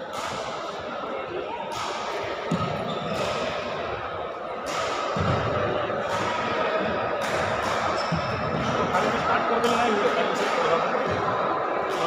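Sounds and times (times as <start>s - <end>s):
racket strikes: 0.0s - 0.8s, 1.7s - 3.8s, 4.6s - 11.2s
indistinct voices in hall: 0.0s - 12.0s.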